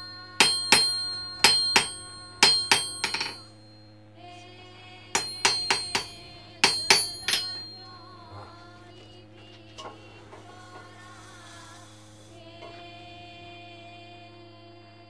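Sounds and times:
metal struck ringing: 0:00.0 - 0:04.0, 0:05.2 - 0:08.6
soft held tone: 0:00.0 - 0:04.6, 0:05.2 - 0:12.5
low steady hum: 0:00.0 - 0:15.0.

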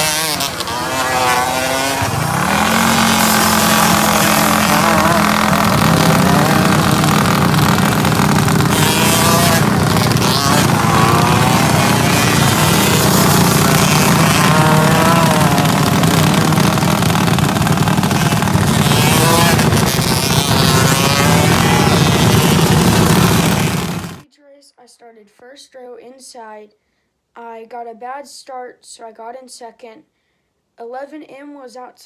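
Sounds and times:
kart engines revving: 0:00.0 - 0:24.2.

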